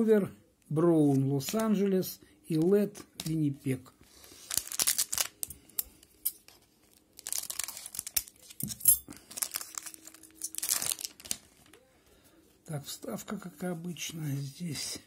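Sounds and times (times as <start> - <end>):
foil wrapper crinkling and tearing: 4.2 - 5.8, 6.5 - 11.8.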